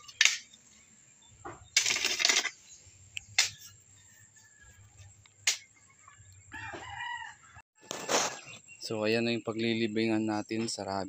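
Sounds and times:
hoe scraping soil: 0:07.8 - 0:08.6.

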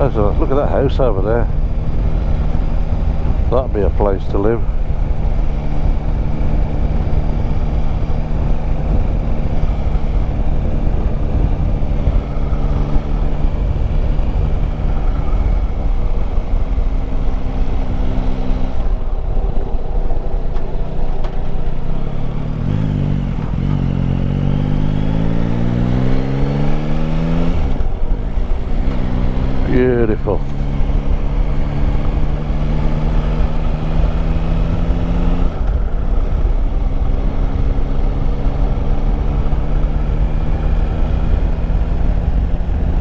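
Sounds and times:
low wind rumble: 0:00.0 - 0:43.0
motorcycle engine running: 0:00.0 - 0:43.0.

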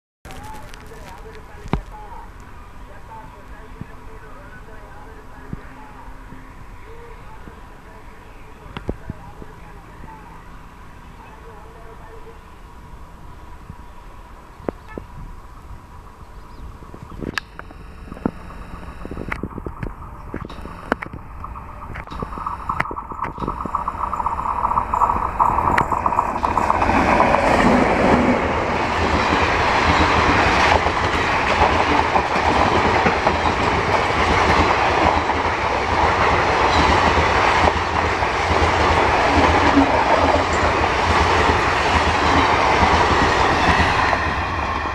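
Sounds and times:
wheels clacking on rails: 0:17.6 - 0:44.9
train passing at speed: 0:19.5 - 0:44.9.

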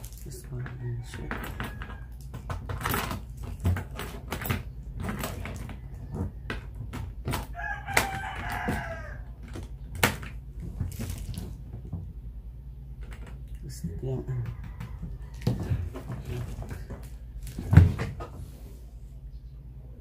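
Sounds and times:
rooster crowing: 0:00.7 - 0:02.4, 0:07.3 - 0:09.5, 0:14.1 - 0:16.5.

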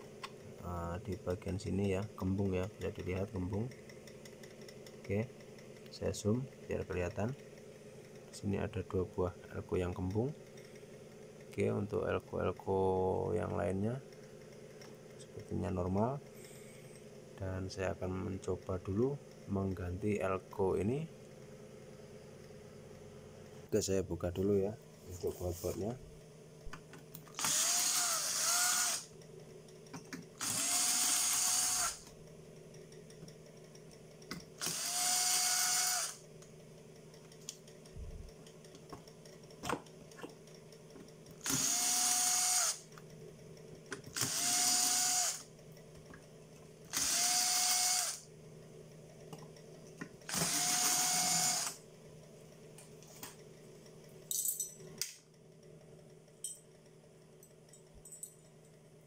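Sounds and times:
cordless drill motor whine: 0:27.3 - 0:29.2, 0:30.4 - 0:32.2, 0:34.6 - 0:36.2, 0:41.4 - 0:42.9, 0:44.0 - 0:45.5, 0:46.9 - 0:48.3, 0:50.2 - 0:51.8.

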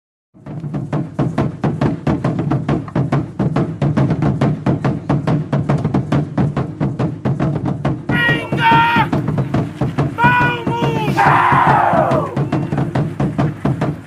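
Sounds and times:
fast percussive beat: 0:00.4 - 0:14.0.

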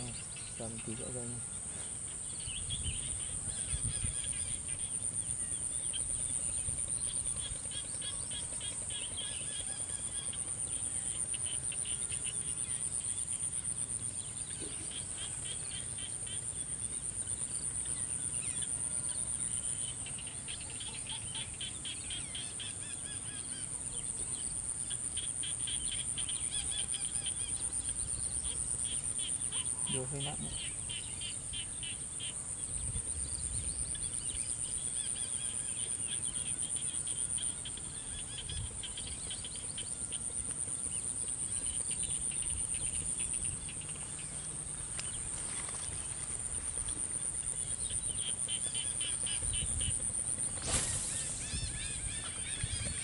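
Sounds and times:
low pulsed insect chirping: 0:00.0 - 0:53.0
high-pitched insect trill: 0:22.1 - 0:53.0.

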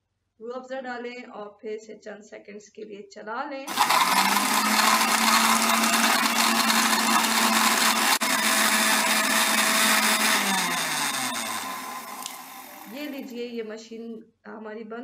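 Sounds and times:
blender motor winding down: 0:03.7 - 0:13.3
blender running: 0:03.7 - 0:13.4.

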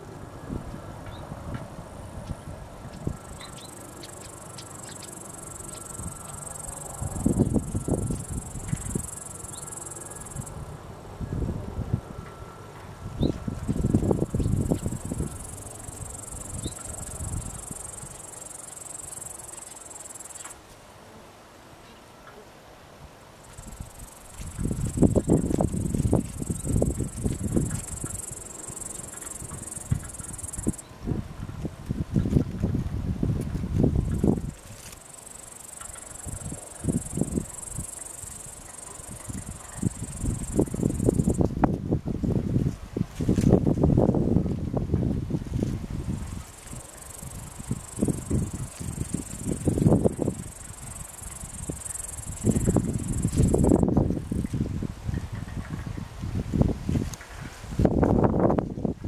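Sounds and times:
low rumbling on microphone: 0:00.0 - 0:18.2, 0:23.6 - 0:34.7, 0:38.9 - 0:46.5
low rumbling noise: 0:00.0 - 0:19.6
high-pitched insect trill: 0:03.1 - 0:10.6, 0:13.6 - 0:20.6, 0:23.4 - 0:30.9, 0:34.0 - 0:41.5, 0:46.2 - 0:54.5.

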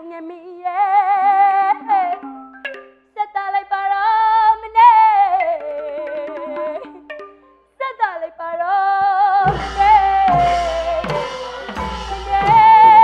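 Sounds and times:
woman singing with vibrato: 0:00.0 - 0:02.3, 0:03.2 - 0:07.1, 0:07.8 - 0:13.0
light percussion: 0:09.4 - 0:13.0.

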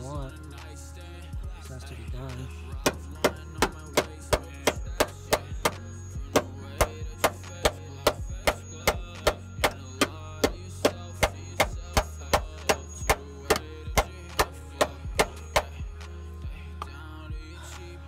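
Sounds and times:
hammer beating steel: 0:02.9 - 0:15.8.

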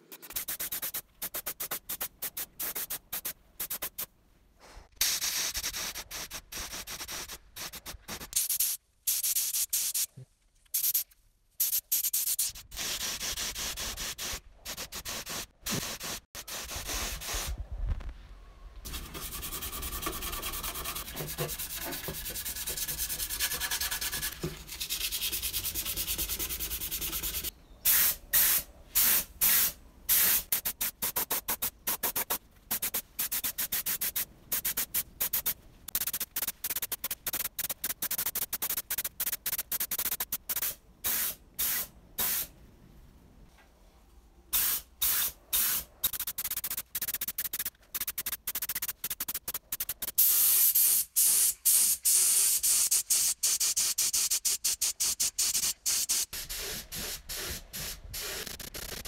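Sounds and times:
paint spray gun hissing: 0:44.6 - 0:59.0.

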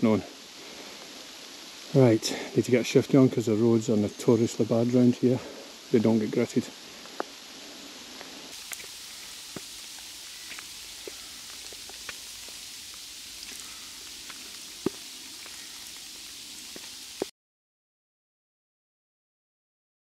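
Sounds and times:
sleet hissing: 0:00.0 - 0:17.3
ice ticking on surfaces: 0:08.6 - 0:17.3.

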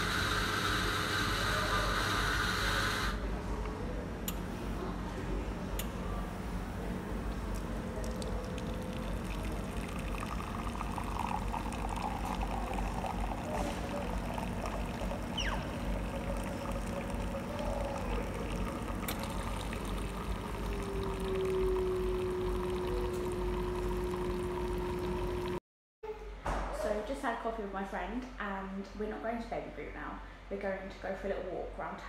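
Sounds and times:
coffee machine steady tone: 0:00.0 - 0:03.3, 0:05.8 - 0:25.6
coffee pouring into mug: 0:07.6 - 0:25.6.

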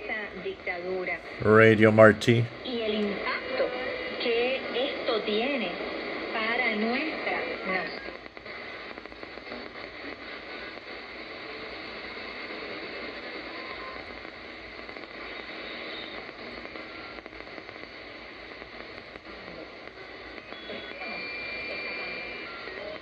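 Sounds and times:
shortwave radio static: 0:01.4 - 0:02.8.

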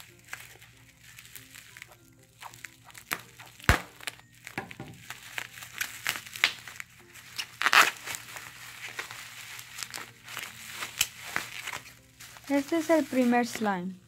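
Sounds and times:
scissors cutting plastic: 0:00.0 - 0:13.7
bubble wrap crinkling: 0:00.0 - 0:14.0
sharp snap: 0:03.6 - 0:04.1.

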